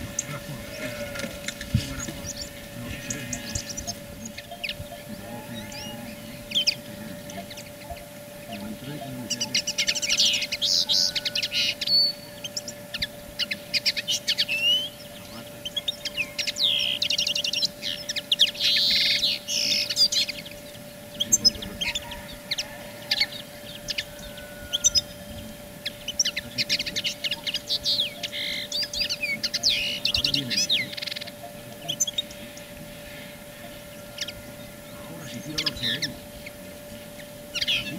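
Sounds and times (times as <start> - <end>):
faint steady hum: 0.0 - 37.9
songbirds chirping and trilling: 0.0 - 37.9.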